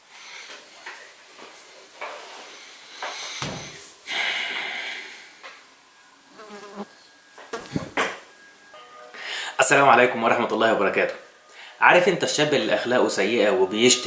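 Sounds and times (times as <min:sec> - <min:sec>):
thump of someone sitting down: 0:03.4 - 0:03.8, 0:07.6 - 0:08.2
housefly buzzing: 0:06.3 - 0:06.9.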